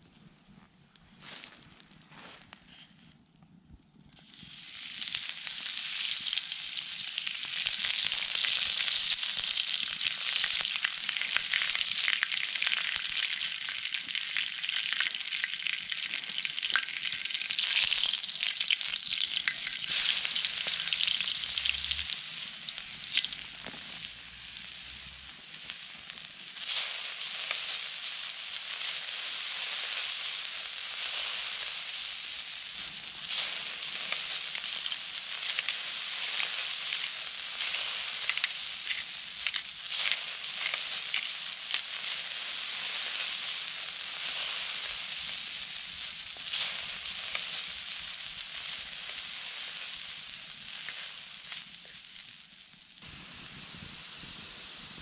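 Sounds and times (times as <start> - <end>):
fat sizzling on hot plate: 4.2 - 55.0.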